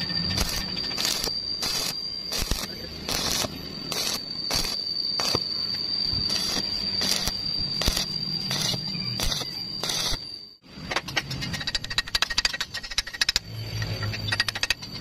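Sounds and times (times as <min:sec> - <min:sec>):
welding arc crackling: 0:00.0 - 0:05.6, 0:06.3 - 0:10.3
high-pitched whine: 0:00.0 - 0:15.0.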